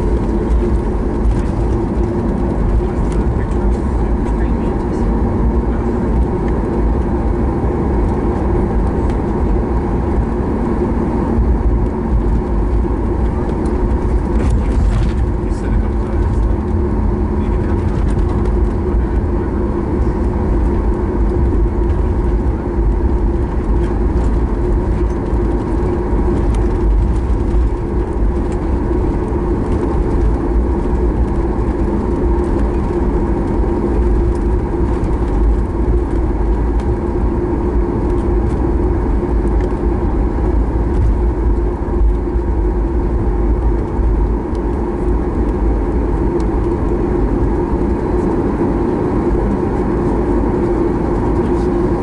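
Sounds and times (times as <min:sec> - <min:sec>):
airplane cabin engine hum: 0:00.0 - 0:52.0
faint rattles: 0:11.6 - 0:37.0.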